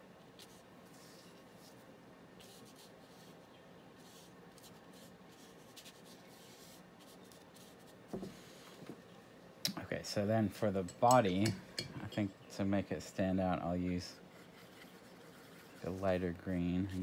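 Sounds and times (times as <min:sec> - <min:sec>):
low room hum: 0:00.0 - 0:17.0
paintbrush swishing on paper: 0:00.2 - 0:08.7
soft knock: 0:08.1 - 0:09.0.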